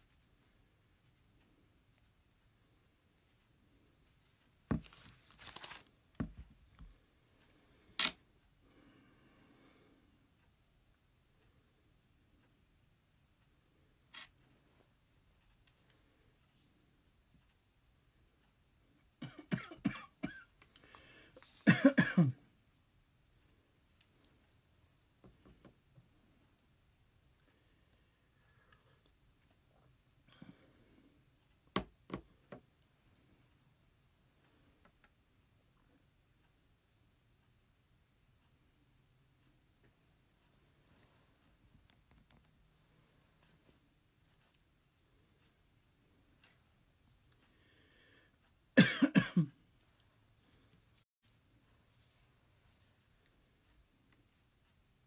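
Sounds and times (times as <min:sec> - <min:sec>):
man coughing: 0:19.2 - 0:20.5, 0:21.6 - 0:22.4, 0:48.8 - 0:49.6.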